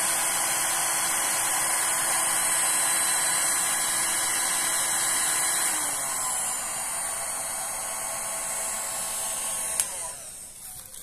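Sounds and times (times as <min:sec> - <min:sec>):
heat gun fan humming: 0:00.0 - 0:11.0.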